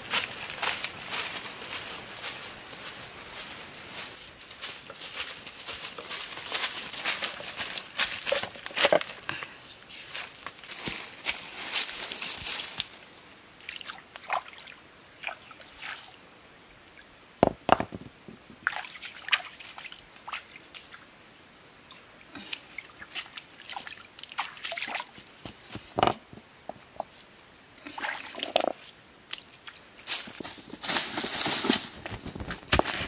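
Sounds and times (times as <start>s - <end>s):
stream water splashing: 13.6s - 16.2s, 18.6s - 21.1s, 21.9s - 25.3s.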